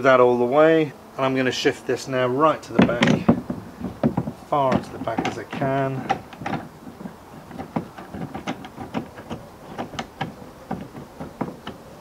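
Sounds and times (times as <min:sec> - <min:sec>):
clamp sliding along canoe gunwale: 0:02.5 - 0:12.0.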